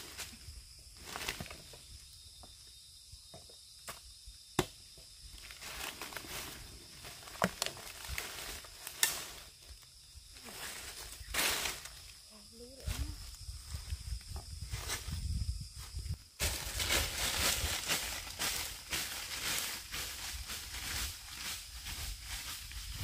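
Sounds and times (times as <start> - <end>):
high insect drone: 0.0 - 23.0
dry leaves rustling and crunching: 5.4 - 9.8, 10.4 - 13.3, 15.9 - 23.0.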